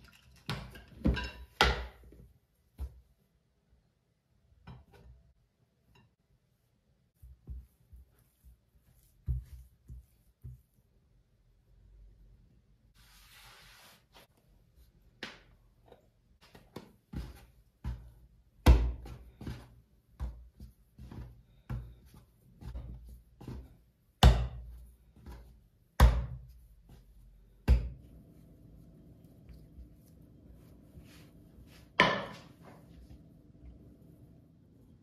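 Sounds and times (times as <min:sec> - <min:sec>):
dough thumping and slapping: 0:00.5 - 0:03.2, 0:07.2 - 0:10.8, 0:16.4 - 0:28.5.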